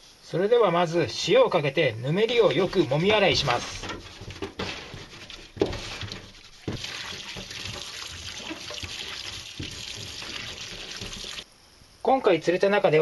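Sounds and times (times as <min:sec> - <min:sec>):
fish knocking against sink: 0:02.3 - 0:11.4
hands rubbing and rinsing fish: 0:02.3 - 0:11.4
tap water running into sink: 0:04.6 - 0:11.4.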